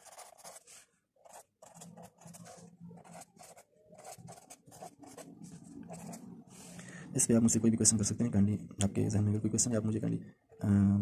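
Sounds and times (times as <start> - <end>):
marker pen scratching on paper: 0.0 - 6.3.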